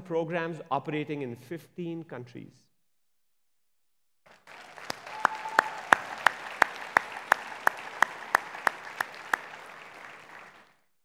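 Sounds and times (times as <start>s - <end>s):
close loud hand claps: 4.3s - 10.8s
audience applauding: 4.3s - 10.9s.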